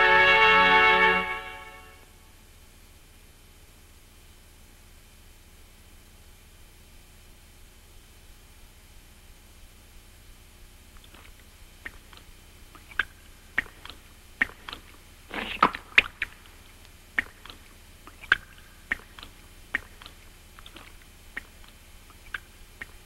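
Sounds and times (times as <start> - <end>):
water drips: 15.6 - 23.0
animal lapping water: 17.2 - 23.0.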